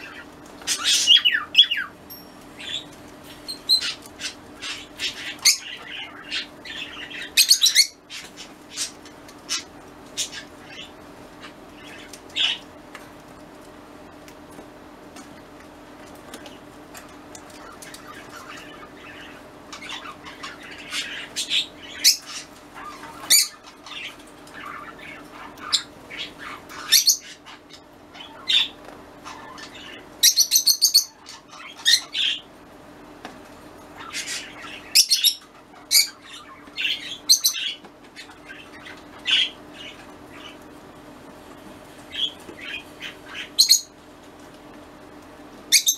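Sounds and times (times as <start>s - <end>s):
cockatiel chirping: 3.5s - 8.9s.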